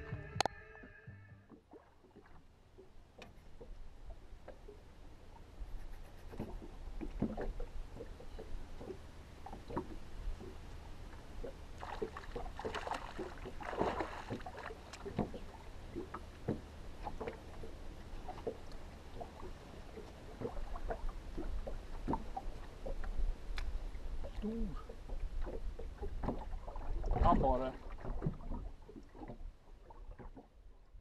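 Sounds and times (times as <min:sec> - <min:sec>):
water lapping: 0:01.5 - 0:31.0
fish splashing: 0:11.4 - 0:16.3
knocks in aluminium boat: 0:13.6 - 0:15.5.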